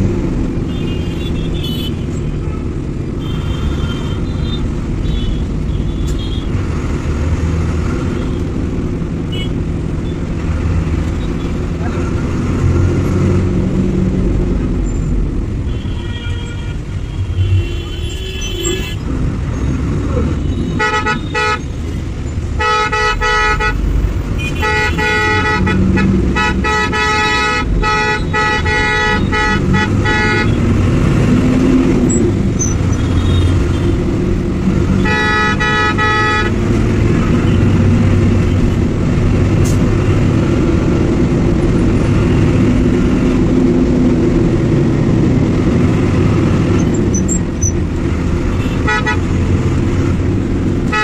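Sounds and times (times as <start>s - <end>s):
bus engine and road noise: 0.0s - 51.0s
multi-tone horn blasts: 20.6s - 21.6s, 22.6s - 23.8s, 24.4s - 30.7s, 35.0s - 36.8s, 48.5s - 49.4s.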